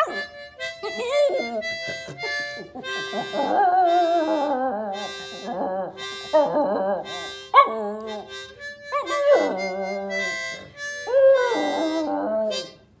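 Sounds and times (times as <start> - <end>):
harmonica playing chords: 0.0 - 13.0
dog howling: 9.0 - 12.7.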